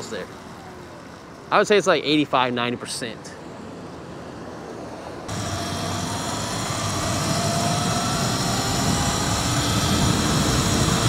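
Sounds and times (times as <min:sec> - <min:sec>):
wind and road noise: 0:00.0 - 0:11.0
faint electric motor whine: 0:05.3 - 0:11.0.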